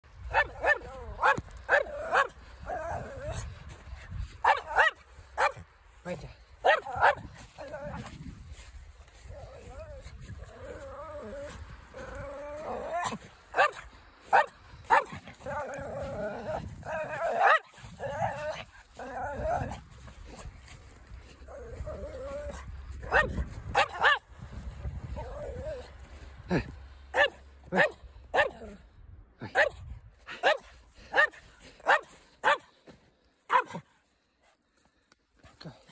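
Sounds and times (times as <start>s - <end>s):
small dog yapping barks: 0.3s - 2.4s, 4.4s - 5.6s, 6.6s - 8.1s, 12.9s - 15.7s, 16.9s - 18.6s, 22.5s - 24.2s, 27.2s - 28.7s, 29.5s - 29.8s, 30.4s - 32.7s, 33.5s - 33.8s
dog growling: 0.8s - 3.5s, 9.2s - 13.3s, 15.3s - 19.9s, 21.5s - 22.7s.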